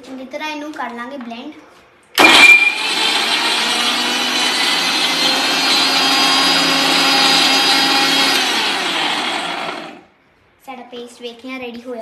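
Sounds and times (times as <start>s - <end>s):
mixer grinder running: 2.2s - 10.1s.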